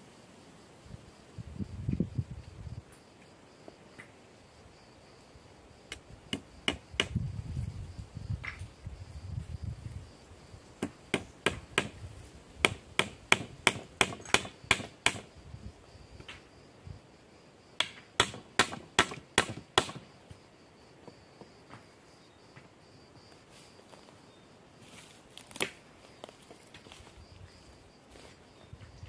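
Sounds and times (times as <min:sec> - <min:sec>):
hammer striking wood: 0:06.3 - 0:07.2, 0:10.8 - 0:12.0, 0:12.6 - 0:15.2, 0:17.8 - 0:20.0.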